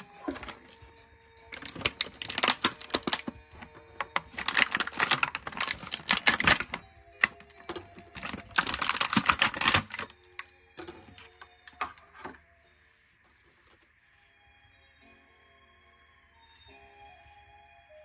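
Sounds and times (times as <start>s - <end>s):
plastic bag crinkling: 0.0s - 0.9s, 1.5s - 12.4s.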